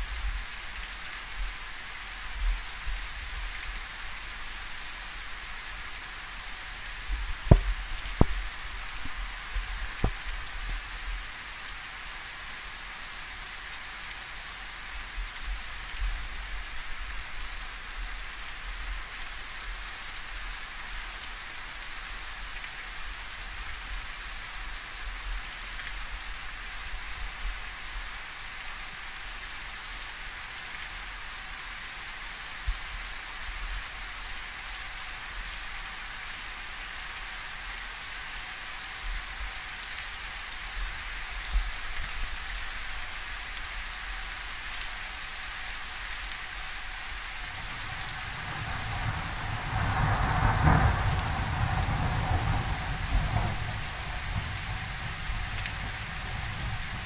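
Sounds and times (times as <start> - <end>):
steady rain hiss: 0.0 - 57.0.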